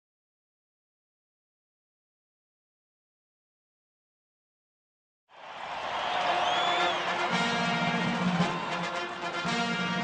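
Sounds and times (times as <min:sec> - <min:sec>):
orchestral music with low notes: 0:07.1 - 0:10.0.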